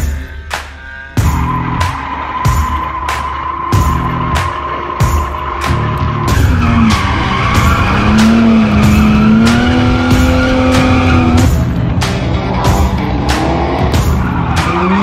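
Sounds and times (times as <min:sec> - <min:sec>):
music with steady beat: 0:00.0 - 0:15.0
tyres squealing: 0:01.2 - 0:11.5
car engine at high revs: 0:01.2 - 0:15.0.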